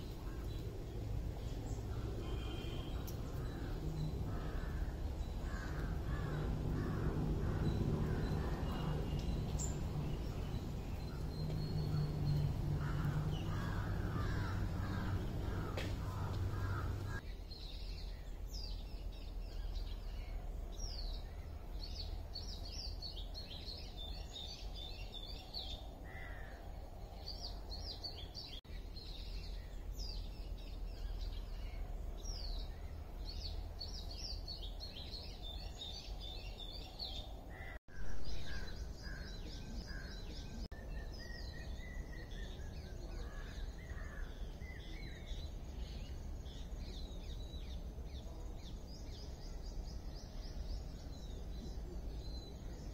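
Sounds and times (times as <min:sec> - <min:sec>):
rising and falling bird call: 0:00.0 - 0:18.2
low outdoor rumble: 0:00.0 - 0:52.9
small birds chirping: 0:00.0 - 0:52.9.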